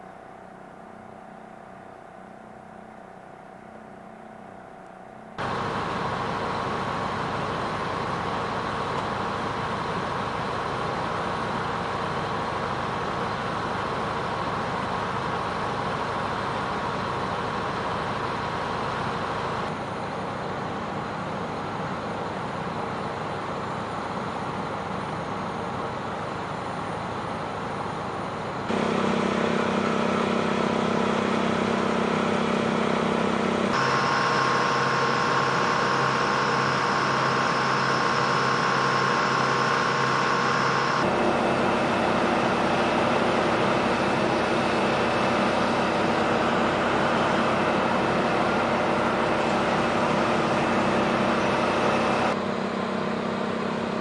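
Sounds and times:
idling engines and machinery drone: 0.0s - 54.0s
held hum tones: 28.6s - 54.0s.

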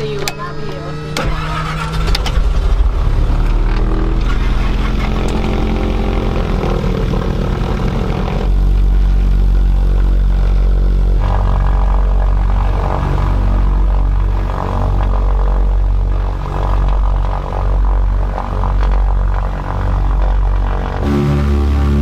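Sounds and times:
propeller engine drone in cabin: 0.0s - 22.0s.

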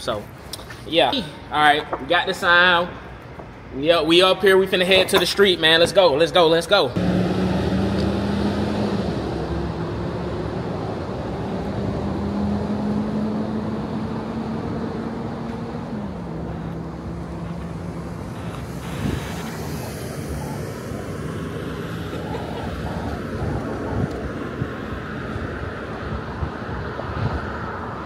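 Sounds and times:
street traffic: 0.0s - 28.0s
vehicle engine hum: 7.0s - 28.0s.

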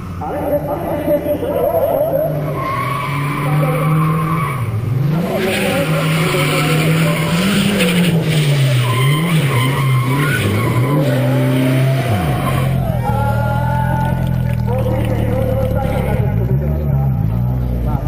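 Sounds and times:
car engine revving: 0.0s - 18.0s
tyres squealing: 5.4s - 12.9s.

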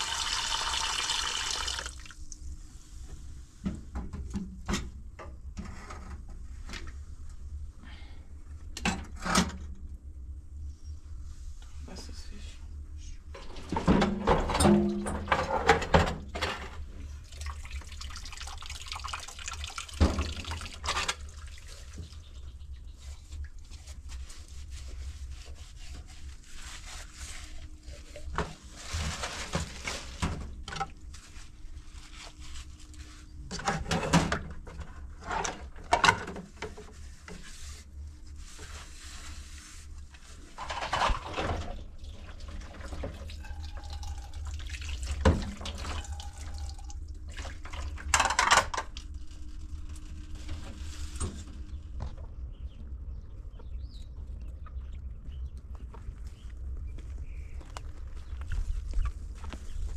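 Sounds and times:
water running and splashing: 0.0s - 2.3s, 17.3s - 22.2s
clatter of things handled: 28.1s - 31.3s, 40.4s - 41.8s, 48.0s - 52.3s.

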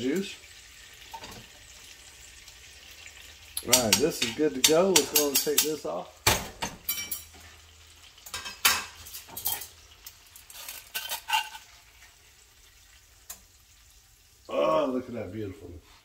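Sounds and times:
faint oil sizzle: 0.0s - 16.0s
metal tongs clanking on a pan: 3.5s - 7.6s, 8.2s - 11.8s.

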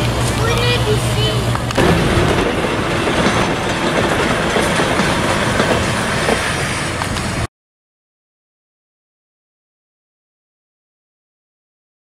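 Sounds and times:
electric railway car running on track: 0.0s - 7.5s.

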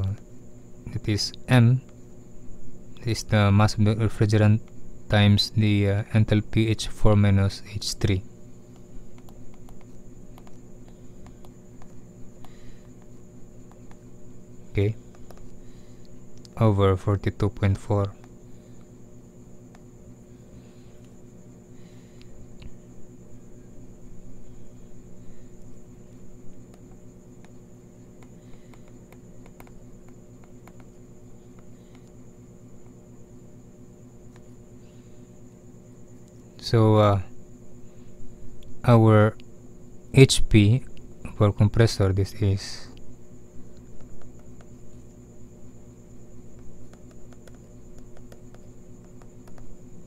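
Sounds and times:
electrical hum: 0.0s - 50.0s
faint high whine: 0.0s - 50.0s
stylus tapping on tablet screen: 9.1s - 10.6s, 28.2s - 30.9s, 46.6s - 49.7s.

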